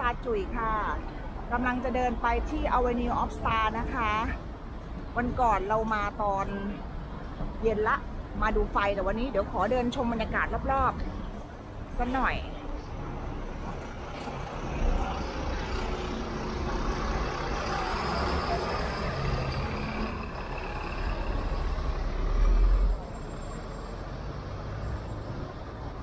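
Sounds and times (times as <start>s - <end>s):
bus engines running: 0.0s - 26.0s
city street traffic: 0.0s - 26.0s.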